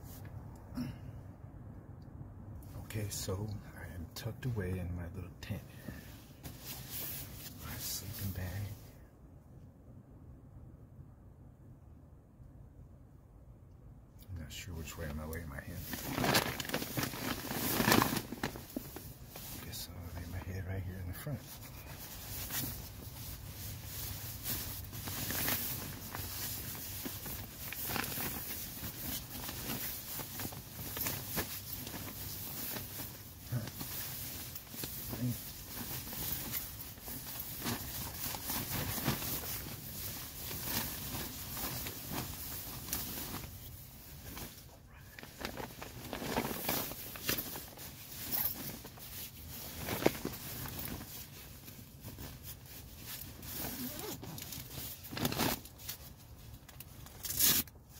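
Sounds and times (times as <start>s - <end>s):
sleeping bag rustling: 5.8s - 8.2s, 15.7s - 20.4s, 21.2s - 57.7s
tent fabric crinkling: 5.8s - 8.7s, 14.8s - 57.9s.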